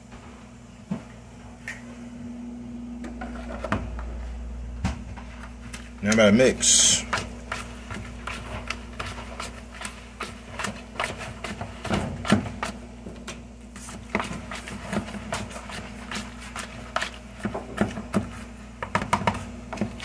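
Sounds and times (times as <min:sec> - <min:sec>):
steady low hum: 0:00.0 - 0:20.0
fork scraping plastic bowl: 0:05.7 - 0:12.8, 0:13.7 - 0:18.5.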